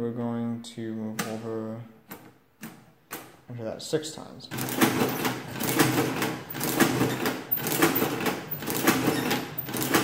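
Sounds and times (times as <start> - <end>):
adding machine crank clattering: 4.5 - 10.0.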